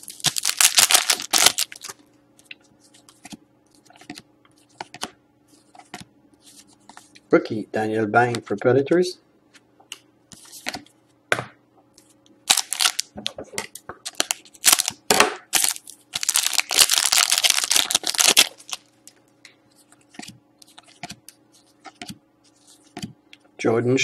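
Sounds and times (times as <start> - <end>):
wrapper crinkling and tearing: 0.0 - 2.0, 12.5 - 13.1, 14.1 - 19.2.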